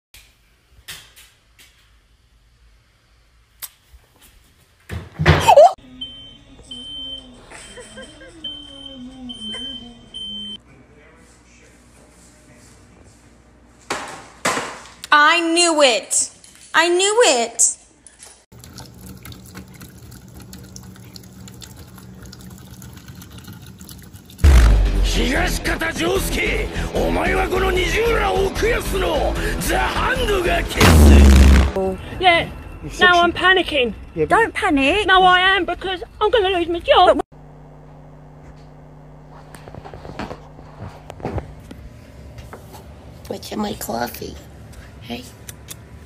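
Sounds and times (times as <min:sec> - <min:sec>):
smoke alarm beeping: 0:06.0 - 0:10.6
loud bang: 0:24.4 - 0:25.3, 0:30.8 - 0:31.8.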